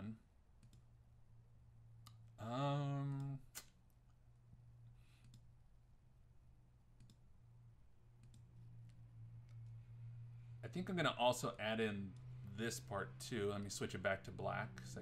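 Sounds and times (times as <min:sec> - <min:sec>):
low steady hum: 0:00.0 - 0:15.0
computer mouse clicks: 0:00.6 - 0:00.9, 0:05.2 - 0:05.5, 0:07.0 - 0:07.2, 0:08.2 - 0:09.7.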